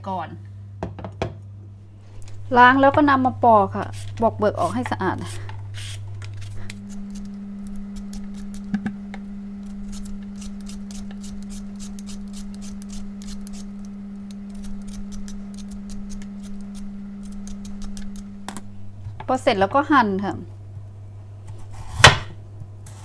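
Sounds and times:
steady low hum: 0.0 - 23.0
peeler scraping potato: 3.8 - 8.8, 9.6 - 18.3.

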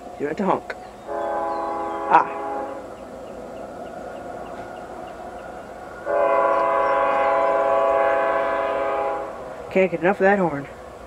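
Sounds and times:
locomotive air horn: 1.1 - 3.0, 6.0 - 9.6.

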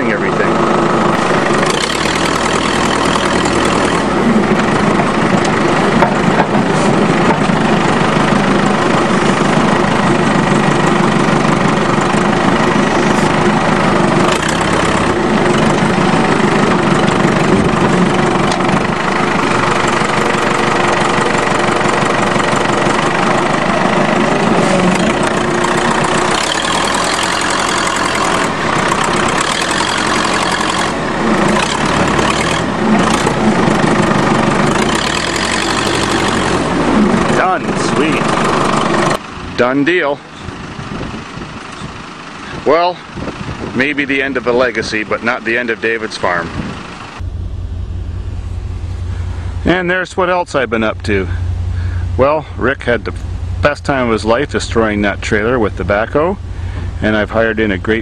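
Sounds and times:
tractor engine running: 0.0 - 58.0
knocks and clanks: 1.1 - 8.0.

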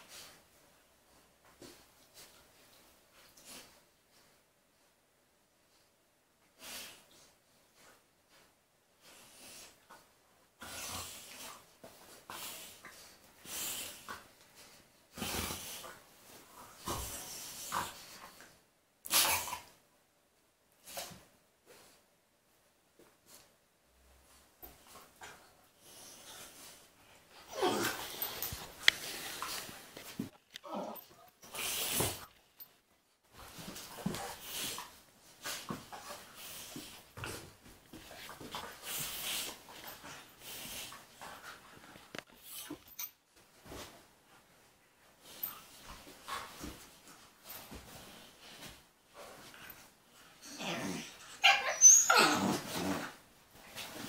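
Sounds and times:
dogs scuffling: 27.7 - 44.6.

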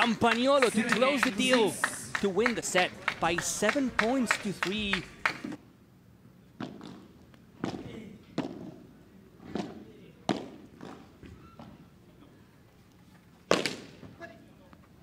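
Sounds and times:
ball struck by paddles: 9.5 - 11.0, 13.5 - 14.0.

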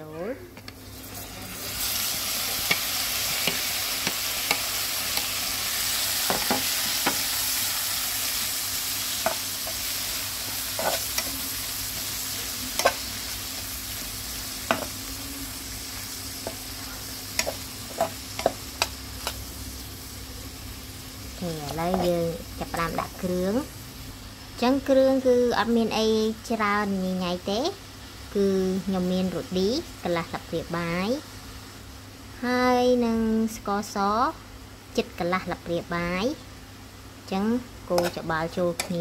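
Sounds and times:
shrimp sizzling in hot oil: 0.7 - 32.2, 35.4 - 39.0
spatula scraping pan: 10.6 - 12.1.

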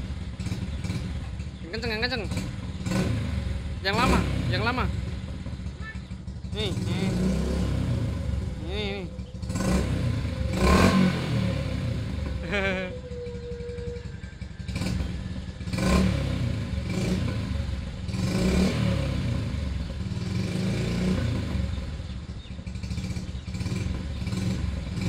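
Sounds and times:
motorcycle engine revving: 0.0 - 25.0.

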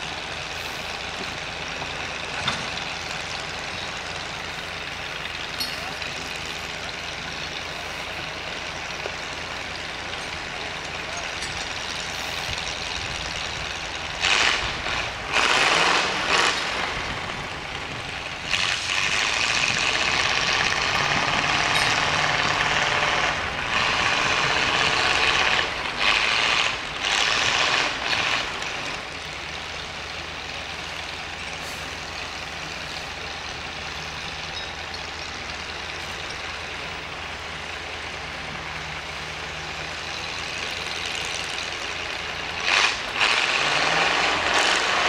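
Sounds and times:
steam engine low rumble: 0.0 - 45.0
steam engine hissing blasts: 31.5 - 35.1.

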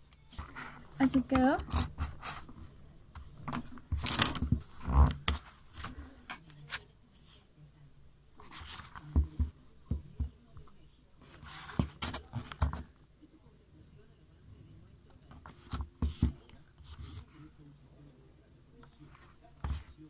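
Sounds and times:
paper notebook rustling: 0.3 - 7.4, 8.4 - 9.5.

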